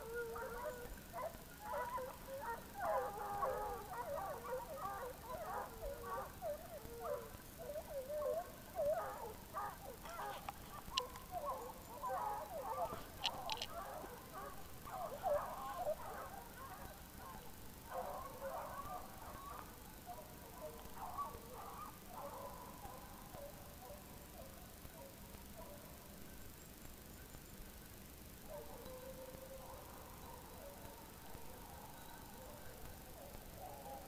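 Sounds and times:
hounds baying: 0.0s - 25.9s, 28.5s - 34.0s
faint clicks: 9.9s - 16.0s.

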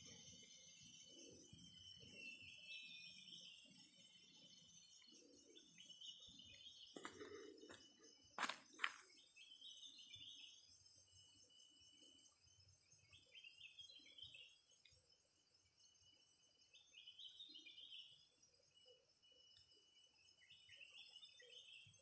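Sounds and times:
birds chirping: 1.1s - 14.9s.

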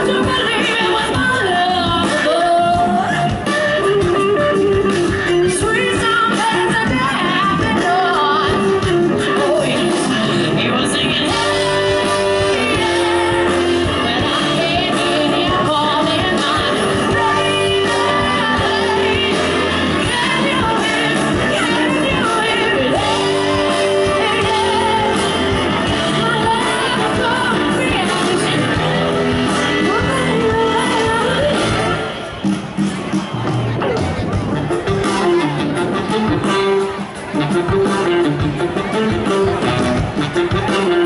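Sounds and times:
woman singing: 0.0s - 32.1s
live band with horns playing: 0.0s - 41.0s.

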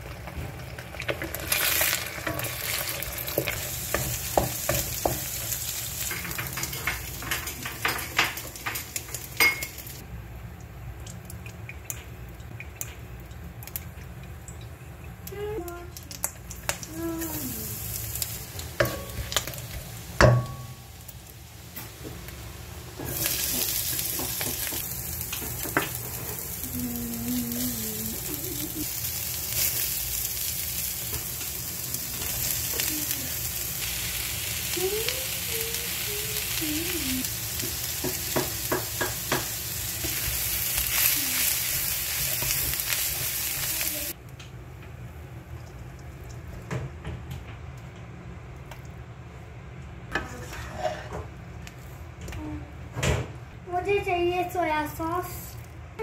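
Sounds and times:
vegetables sizzling in oil: 0.0s - 10.0s, 15.4s - 44.2s.

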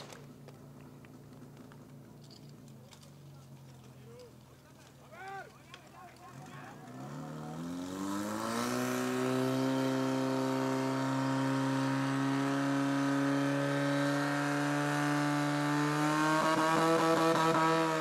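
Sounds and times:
fire pump engine revving: 5.8s - 18.0s.

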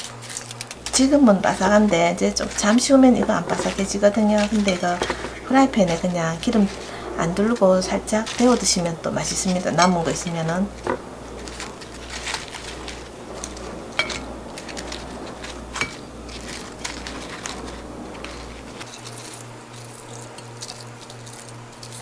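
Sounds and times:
fried food crackling and rustling: 0.0s - 22.0s.

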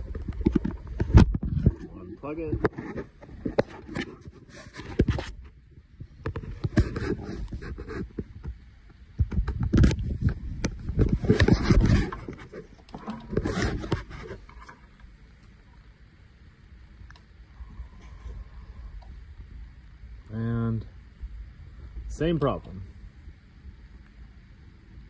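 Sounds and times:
power cord rubbing and scraping: 0.0s - 8.6s, 9.2s - 15.0s.

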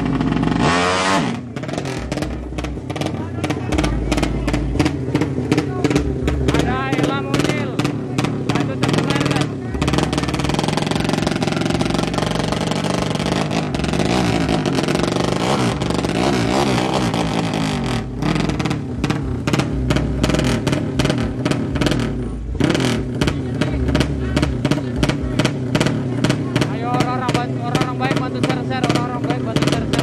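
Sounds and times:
motorcycle engine revving hard: 0.0s - 30.0s.

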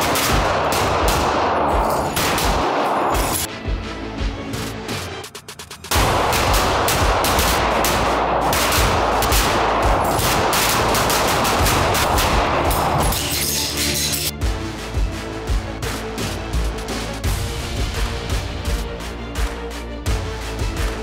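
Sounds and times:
pistols firing rapidly: 0.0s - 3.5s, 5.9s - 14.3s
background music: 0.0s - 21.0s.

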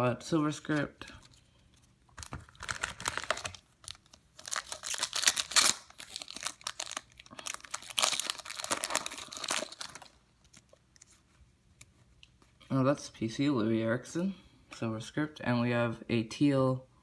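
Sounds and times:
foil wrapper tearing and crinkling: 2.2s - 10.7s.

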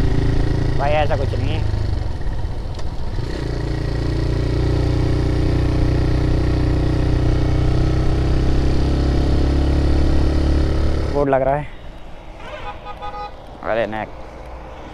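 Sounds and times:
motorcycle engine running: 0.0s - 11.2s.

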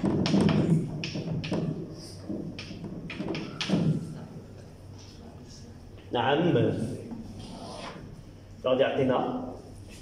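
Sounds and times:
chalk writing on blackboard: 7.4s - 8.0s.

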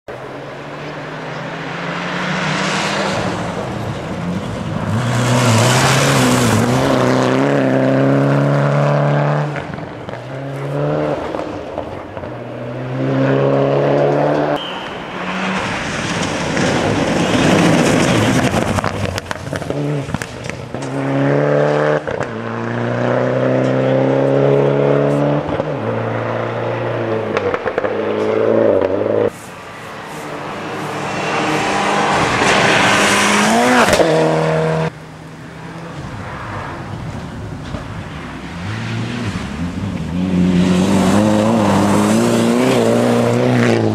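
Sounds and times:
rally car engine revving: 0.5s - 29.4s, 30.0s - 43.9s
tyres and flung gravel: 14.6s - 21.0s.

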